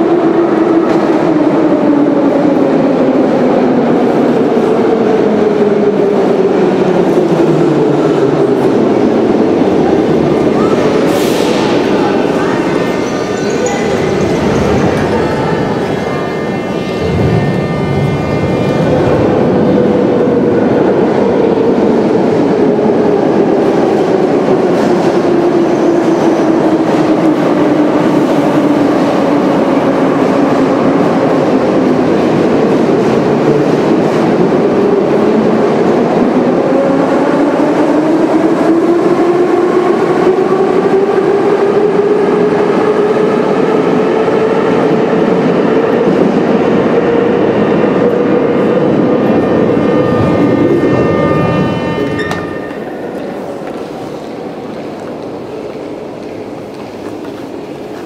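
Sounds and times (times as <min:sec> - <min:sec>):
wheel and rail rumble: 0:00.0 - 0:39.5.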